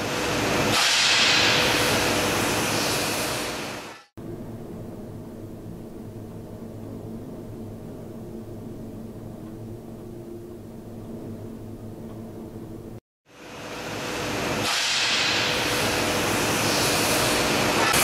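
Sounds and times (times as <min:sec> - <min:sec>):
factory machinery hissing din: 0:00.0 - 0:04.1, 0:13.5 - 0:18.0.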